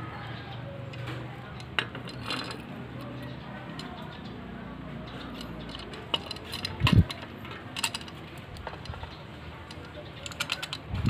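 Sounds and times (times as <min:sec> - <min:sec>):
metal clicks and clinks: 0:00.9 - 0:04.2, 0:05.0 - 0:11.0.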